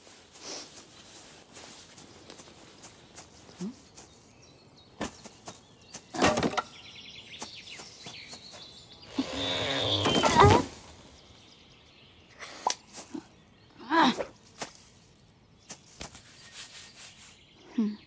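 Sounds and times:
branch straining sound: 9.1s - 11.2s
twigs rustling and snapping: 14.3s - 16.4s.

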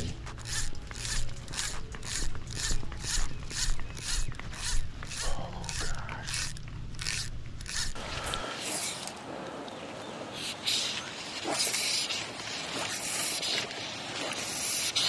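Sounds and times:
fishing reel click drag ratcheting: 0.4s - 8.0s.

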